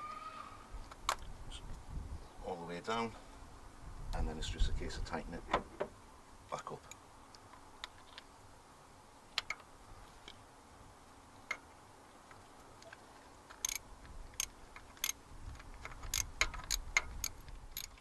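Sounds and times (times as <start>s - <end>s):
socket ratchet clicking: 13.6s - 13.8s, 14.4s - 15.2s, 15.8s - 18.0s.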